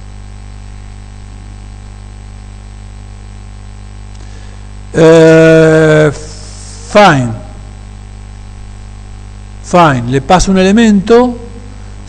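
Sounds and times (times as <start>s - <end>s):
mains hum and hiss: 0.0s - 12.0s
man's hesitation sound: 4.9s - 7.8s.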